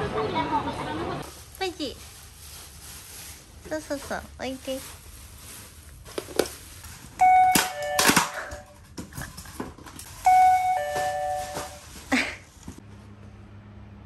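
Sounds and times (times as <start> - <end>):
knocks and handling clatter: 6.1 - 12.8
electronic two-tone doorbell chime: 7.2 - 8.7, 10.2 - 11.8.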